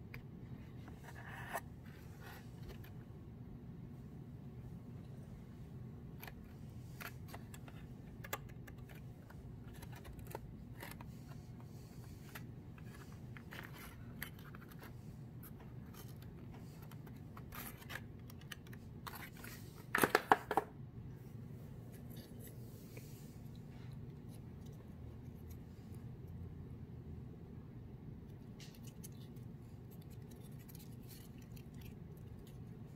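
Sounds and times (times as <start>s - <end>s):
steady low hum: 0.0s - 20.0s, 20.6s - 32.9s
cardboard pieces clicking and scraping: 6.2s - 11.5s.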